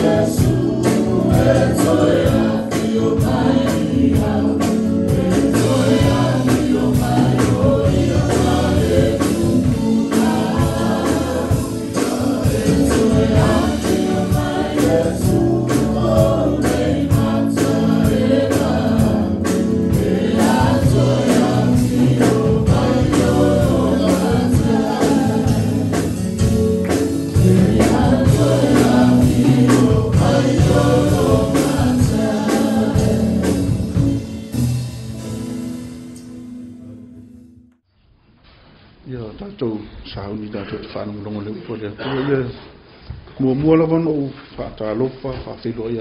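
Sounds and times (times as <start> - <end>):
group singing gospel song: 0.0 - 34.6
drums: 0.0 - 37.4
acoustic guitar: 0.0 - 37.8.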